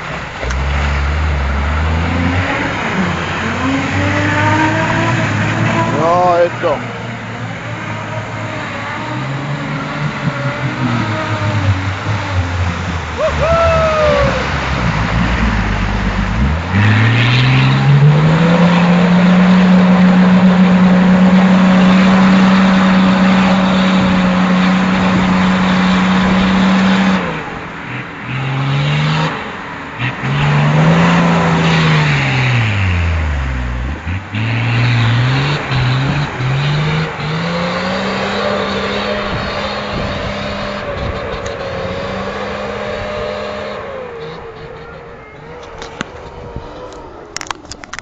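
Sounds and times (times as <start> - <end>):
diesel engine revving: 0.0 - 48.0.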